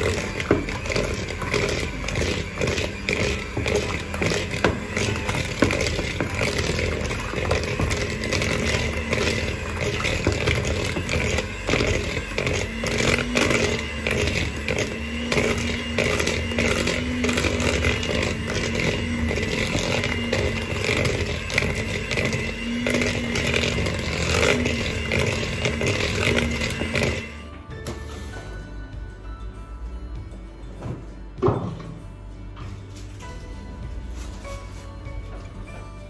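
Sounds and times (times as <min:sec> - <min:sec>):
beaters clattering on plastic bowl: 0:00.0 - 0:27.3
electric hand mixer running: 0:00.0 - 0:27.5.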